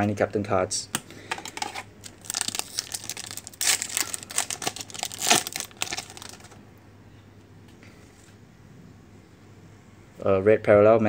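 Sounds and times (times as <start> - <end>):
foil wrapper tearing and crinkling: 1.5 - 6.6.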